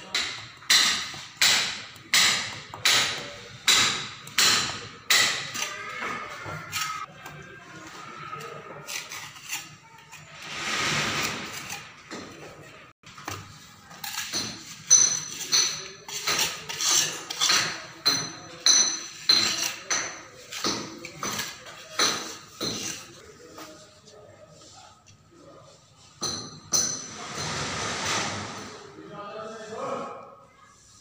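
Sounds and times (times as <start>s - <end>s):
trowel scraping mortar: 2.0s - 7.1s, 7.8s - 12.4s, 13.3s - 23.2s.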